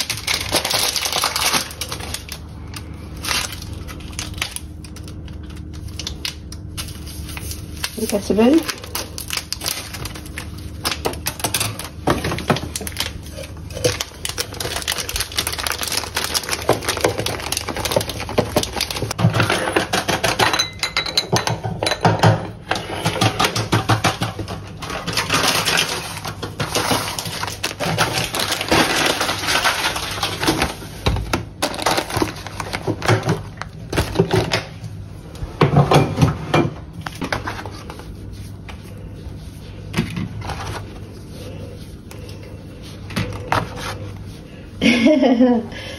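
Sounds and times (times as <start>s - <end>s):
dishes and utensils knocking: 19.2s - 24.6s.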